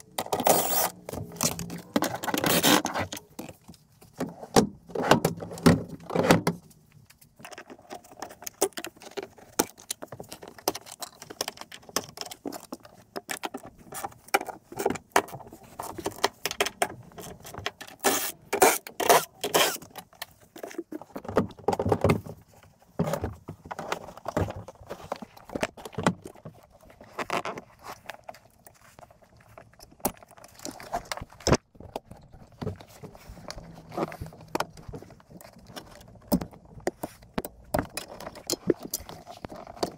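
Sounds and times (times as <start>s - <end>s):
hand tools clicking on bolts: 0.0s - 2.9s.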